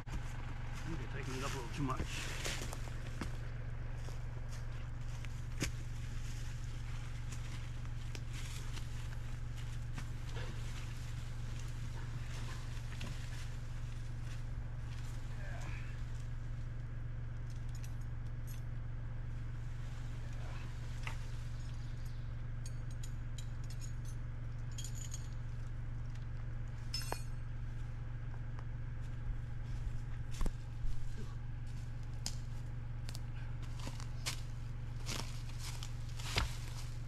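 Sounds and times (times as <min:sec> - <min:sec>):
tractor engine idling: 0:00.0 - 0:37.0
light metallic clinks: 0:21.5 - 0:25.8, 0:26.8 - 0:27.6.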